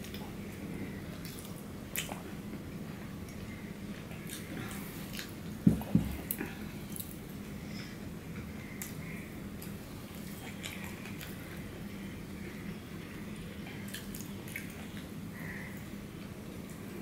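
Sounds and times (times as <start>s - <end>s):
dull thumps: 5.6s - 6.3s.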